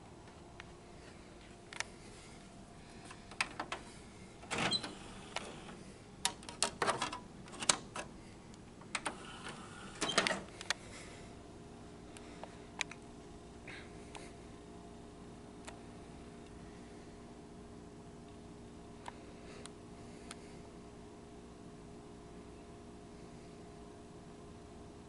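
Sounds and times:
faint steady hum: 0.0 - 25.0
disc tray mechanism clicking: 4.4 - 8.1, 8.8 - 10.7.

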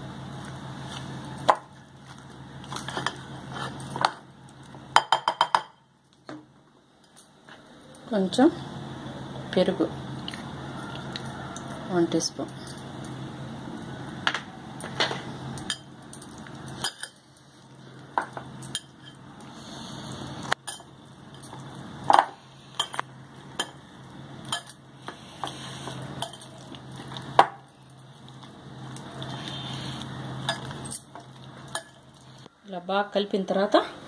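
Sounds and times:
soft stirring of marinade: 22.5 - 32.6.

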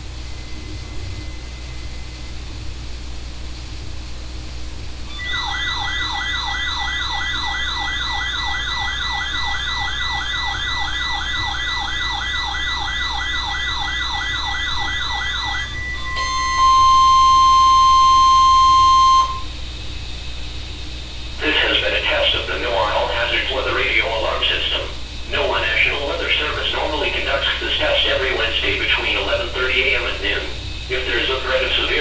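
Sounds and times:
loud steady tone: 0.0 - 2.6, 5.0 - 20.4, 21.0 - 32.0
steady high beep: 5.1 - 19.5
warbling siren-like alarm: 5.1 - 19.5.

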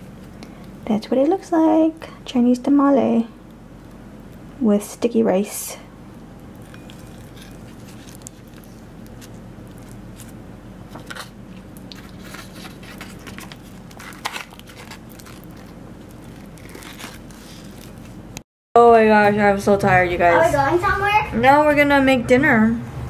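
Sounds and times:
steady low hum: 0.0 - 23.0
leaf wrapping crinkling: 6.0 - 18.4.

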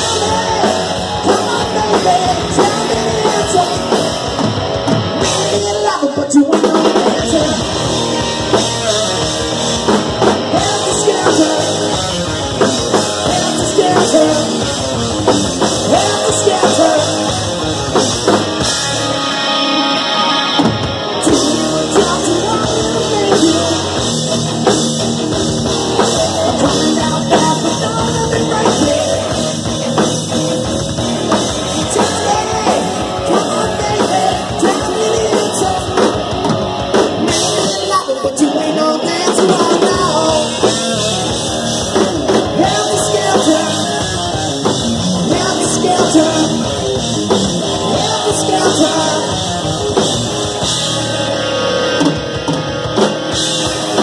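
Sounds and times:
person singing: 0.0 - 4.2, 5.2 - 9.3, 10.4 - 14.8, 15.7 - 18.0, 19.4 - 24.1, 25.8 - 29.7, 31.7 - 36.3, 37.3 - 50.1
distorted electric guitars: 0.0 - 54.0
drum kit: 0.0 - 54.0.

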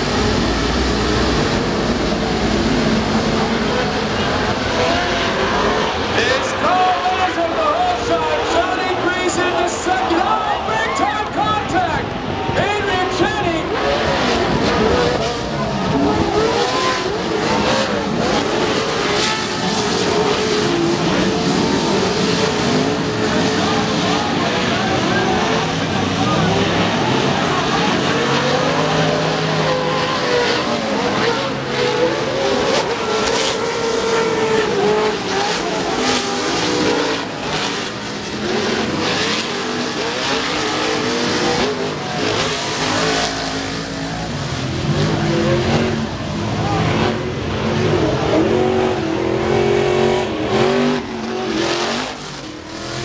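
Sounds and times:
steady wash of noise: 0.0 - 16.5
race truck engines revving: 0.0 - 53.0.

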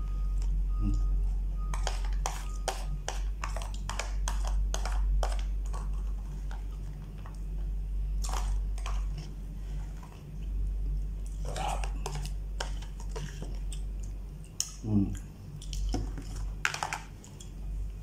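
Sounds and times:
spoon scraping plastic container: 1.7 - 6.9.

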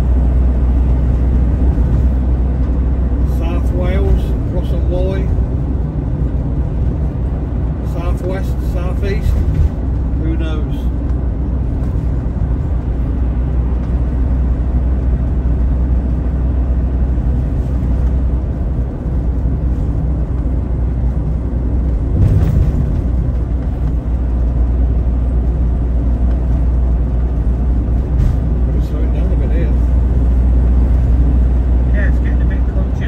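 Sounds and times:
road and engine rumble in cab: 0.0 - 33.0
vehicle bump: 9.0 - 10.2, 19.0 - 24.8, 26.2 - 31.2.

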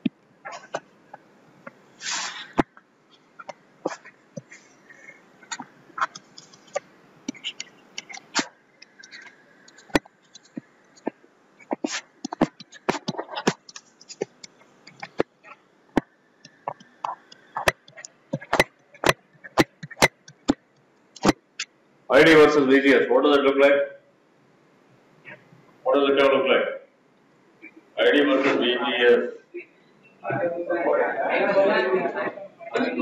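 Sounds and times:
stylus tapping on tablet screen: 5.4 - 15.4, 16.0 - 20.6.

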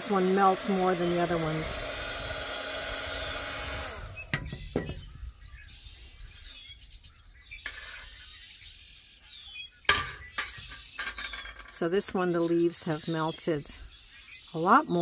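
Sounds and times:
heat gun blowing: 0.0 - 4.5
birds chirping: 3.8 - 15.0.

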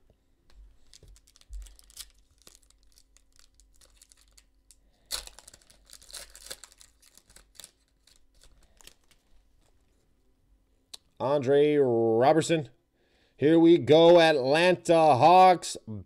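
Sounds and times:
wrapper tearing and crinkling: 0.8 - 9.3.

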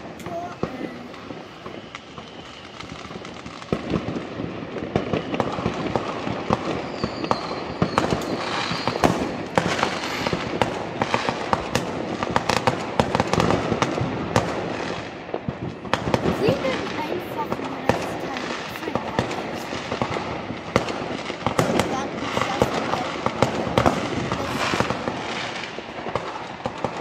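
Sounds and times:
fireworks bangs and crackles: 0.0 - 27.0
firework whistle: 0.6 - 3.7, 5.0 - 6.0, 6.6 - 10.7.

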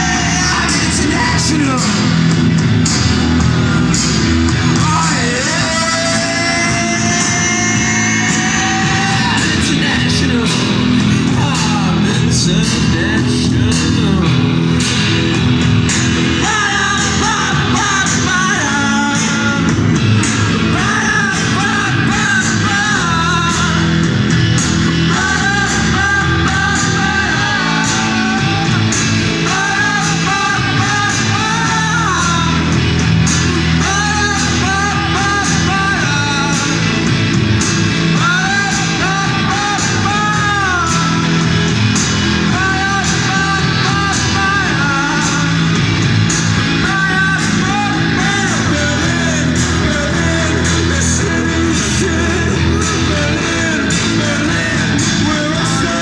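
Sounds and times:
bass line: 0.0 - 56.0
electric guitar: 0.0 - 56.0
keyboard: 0.0 - 56.0
person singing: 0.0 - 56.0
drum beat: 19.2 - 56.0.

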